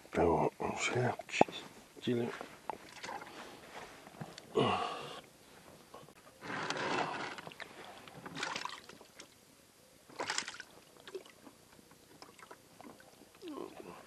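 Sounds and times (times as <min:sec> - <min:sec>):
water splashing around boat: 0:02.8 - 0:03.4, 0:06.9 - 0:09.3, 0:10.1 - 0:14.0.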